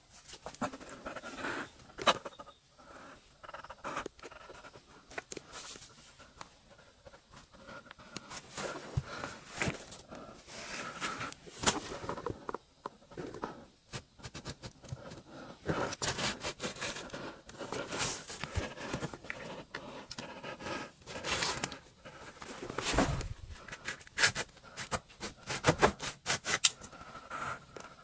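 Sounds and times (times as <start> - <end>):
bedding and cloth rustling: 22.3 - 23.9.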